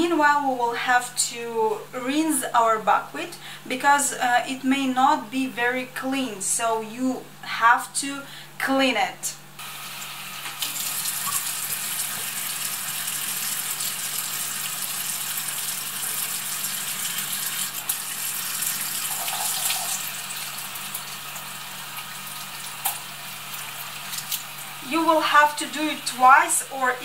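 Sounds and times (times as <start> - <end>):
tap water running into bowl: 9.6 - 24.8.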